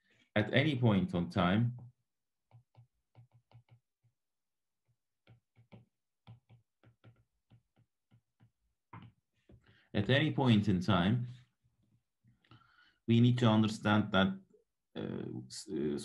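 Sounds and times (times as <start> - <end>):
stylus tapping on glass screen: 5.2 - 9.6.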